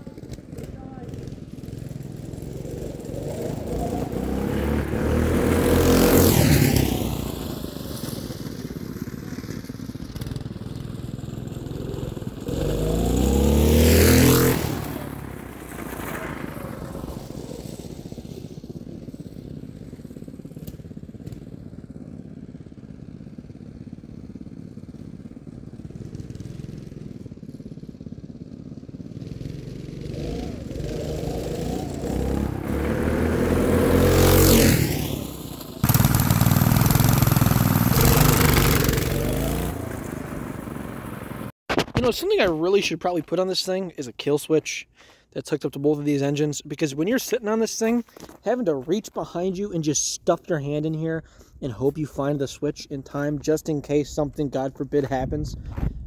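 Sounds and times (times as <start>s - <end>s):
go-kart engine passing by: 0.0s - 41.5s.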